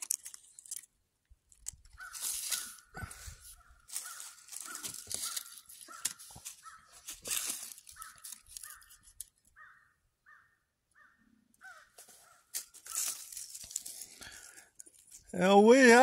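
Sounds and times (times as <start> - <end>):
crow cawing: 2.0 - 9.0, 9.6 - 13.2
dry leaves crackling and rustling: 2.0 - 9.3, 12.0 - 16.0.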